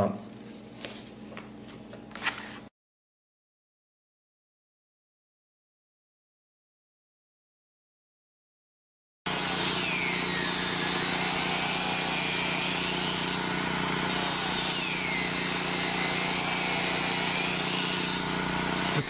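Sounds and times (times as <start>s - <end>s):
angle grinder whining: 9.3s - 19.0s
steady motor hum: 9.3s - 19.0s.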